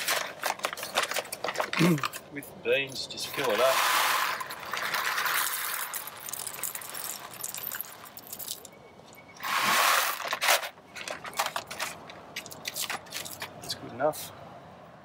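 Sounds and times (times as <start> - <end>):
beans clicking as they settle: 3.3 - 8.8
coffee beans rattling into grinder: 3.4 - 8.5.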